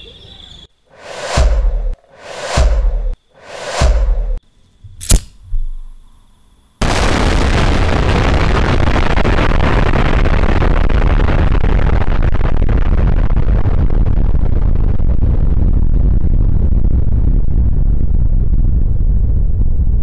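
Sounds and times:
lighter flint wheel click: 0:05.0 - 0:05.4
deep explosion roar: 0:06.8 - 0:20.0.

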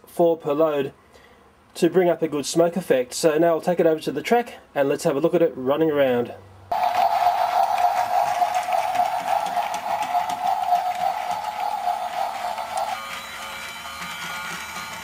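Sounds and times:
toy train motor whirring: 0:06.7 - 0:15.0.

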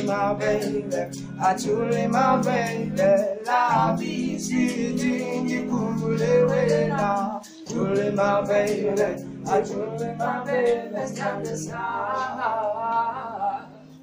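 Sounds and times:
male voices singing in harmony: 0:00.0 - 0:14.0.

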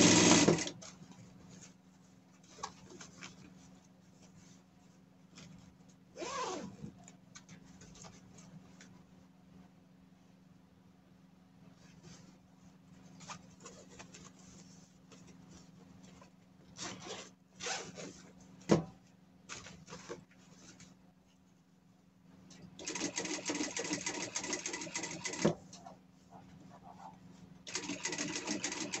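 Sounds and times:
sewing machine stitching: 0:00.0 - 0:00.8, 0:22.8 - 0:25.6, 0:27.7 - 0:29.0.

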